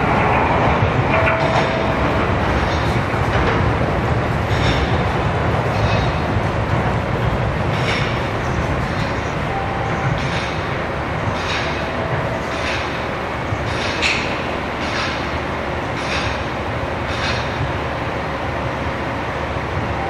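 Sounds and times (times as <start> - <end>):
train rumbling on track: 0.0 - 20.0.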